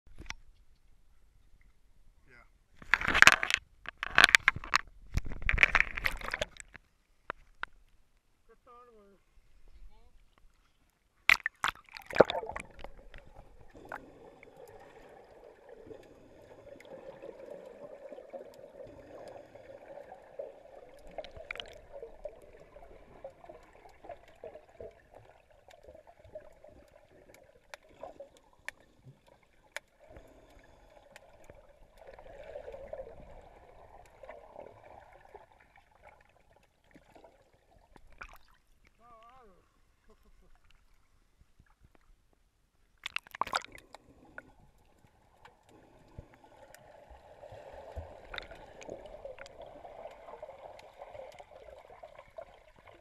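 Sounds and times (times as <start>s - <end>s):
small clicks and crackles: 2.8s - 8.3s, 20.9s - 34.4s, 47.6s - 53.0s
splash into water: 11.3s - 13.0s.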